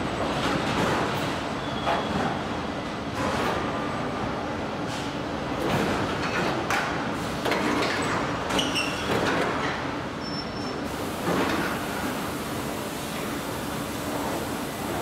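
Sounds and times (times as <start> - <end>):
clatter and hiss bursts: 10.9 - 15.0.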